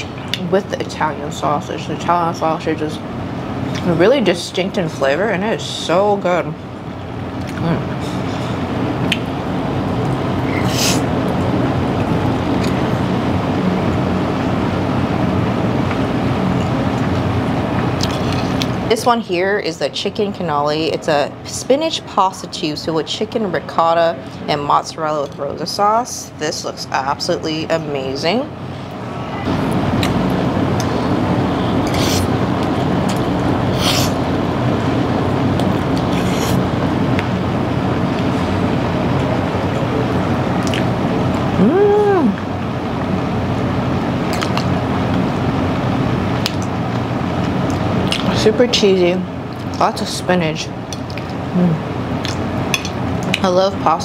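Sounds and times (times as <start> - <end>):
low room hum: 0.0 - 54.0
restaurant background rumble: 0.0 - 54.0
hissy mouth noises eating: 31.8 - 32.3.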